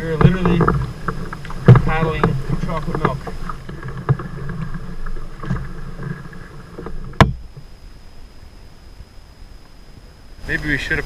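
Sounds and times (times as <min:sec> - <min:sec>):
canoe paddle strokes in water: 0:00.0 - 0:08.6
sharp knock: 0:07.2 - 0:07.4.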